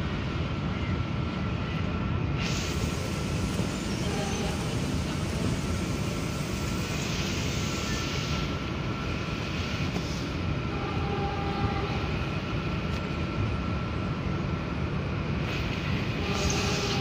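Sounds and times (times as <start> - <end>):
train rumble: 0.0 - 17.0
hiss: 2.4 - 10.4, 15.4 - 17.0.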